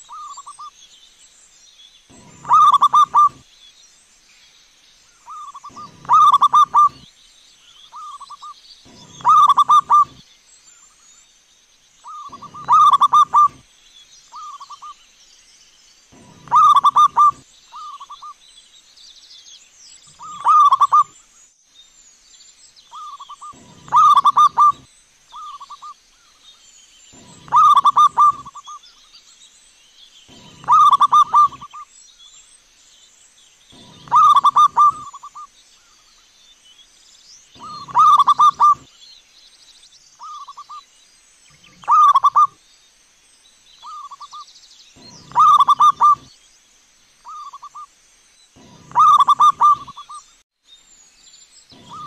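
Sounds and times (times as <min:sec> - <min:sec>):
dove cooing: 0:02.1 - 0:03.4, 0:05.3 - 0:07.0, 0:08.0 - 0:10.2, 0:12.1 - 0:13.6, 0:16.2 - 0:18.2, 0:20.1 - 0:21.1, 0:23.0 - 0:24.8, 0:27.2 - 0:28.7, 0:30.3 - 0:31.8, 0:33.8 - 0:35.4, 0:37.6 - 0:38.9, 0:41.8 - 0:42.5, 0:45.0 - 0:46.3, 0:48.6 - 0:50.1, 0:51.8 - 0:52.0.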